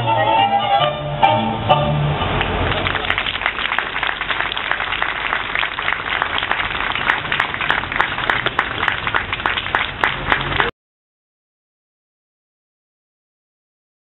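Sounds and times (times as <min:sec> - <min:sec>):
audience applauding: 0:02.4 - 0:10.7.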